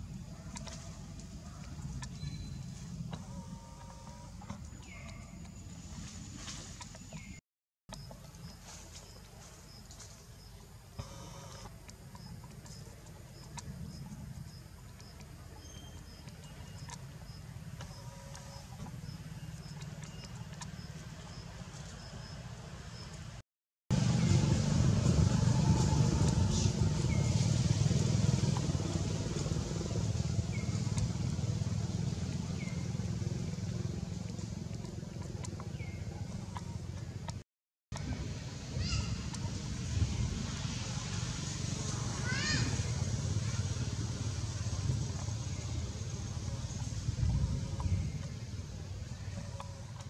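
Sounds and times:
low engine rumble: 0.0s - 50.0s
steady low rumble: 23.9s - 37.4s, 42.8s - 50.0s.

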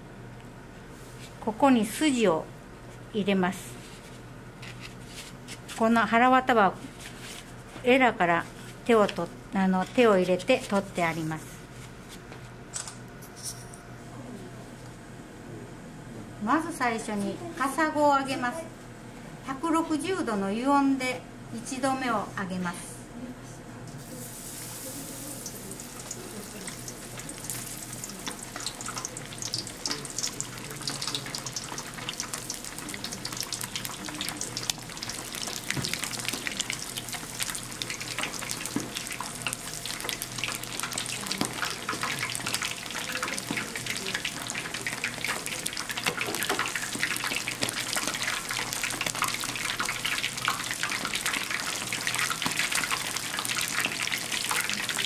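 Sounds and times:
fish deep-frying in oil: 24.1s - 55.0s.

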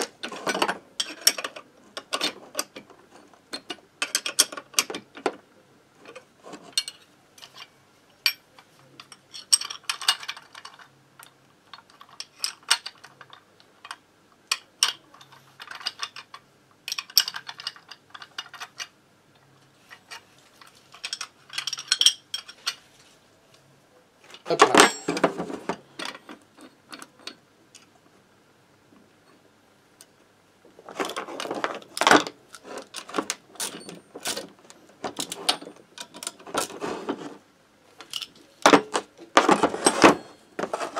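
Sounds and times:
metal tools clinking on workbench: 24.5s - 27.4s, 31.0s - 34.5s.

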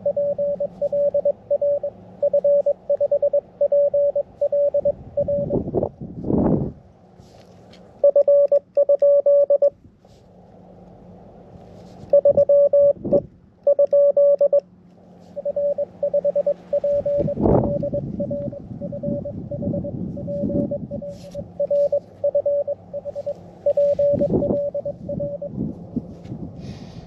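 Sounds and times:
morse code tone: 0.0s - 5.7s, 8.0s - 9.8s, 12.0s - 14.6s, 15.2s - 25.6s
radio static: 15.4s - 25.4s.

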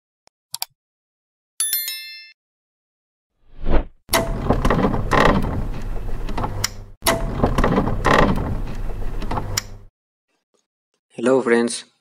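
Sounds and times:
short whoosh: 3.5s - 4.0s.

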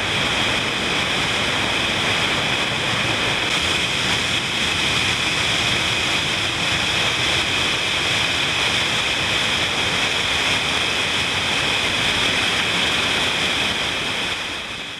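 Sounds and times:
waterfall splashing onto rocks: 3.4s - 14.5s.

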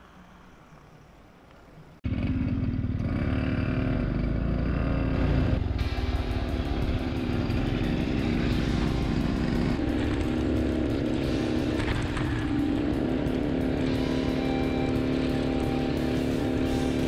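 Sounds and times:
small petrol engine buzzing: 7.2s - 17.0s.

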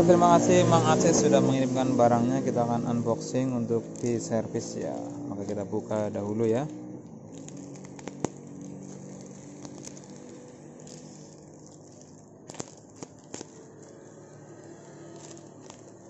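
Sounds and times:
plastic wrapping crinkling: 2.7s - 16.0s.

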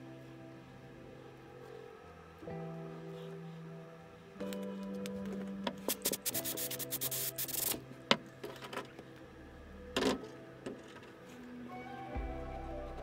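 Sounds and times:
soft background music: 0.0s - 13.0s
scratchy rubbing and clicking: 5.9s - 7.8s.

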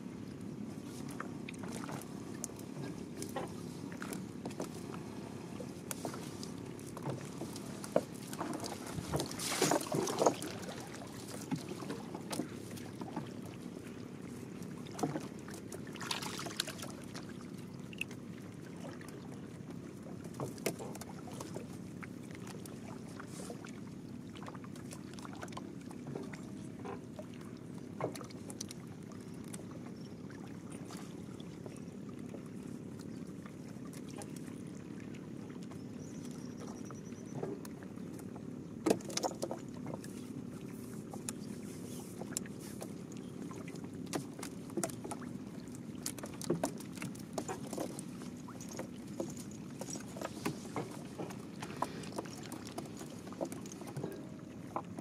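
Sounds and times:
boat motor humming: 0.0s - 55.0s
splashing or rustling: 5.7s - 13.8s, 14.8s - 17.6s.

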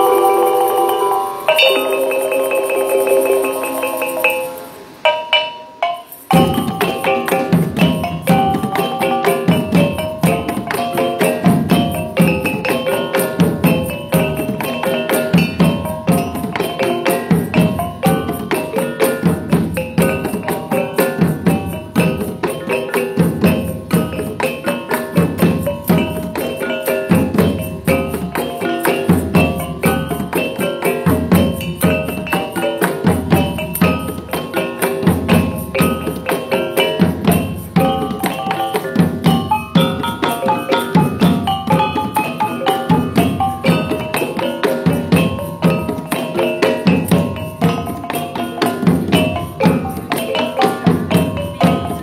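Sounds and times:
small kettle gongs ringing melody: 0.0s - 10.4s
barrel drums beating: 5.0s - 52.0s.

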